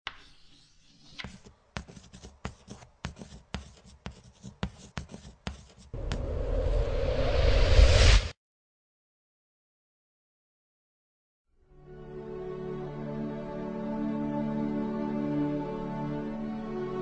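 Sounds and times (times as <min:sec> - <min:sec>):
pencil scratching on paper: 0:00.1 - 0:06.2.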